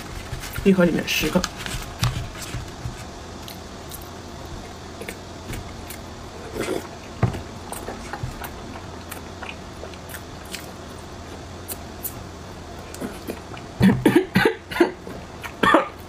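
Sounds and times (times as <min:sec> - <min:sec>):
person chewing: 0:01.8 - 0:13.8, 0:15.0 - 0:16.0.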